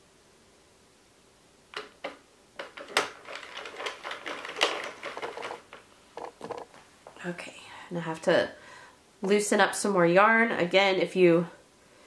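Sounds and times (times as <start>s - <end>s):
knitting machine clattering: 1.8s - 6.6s.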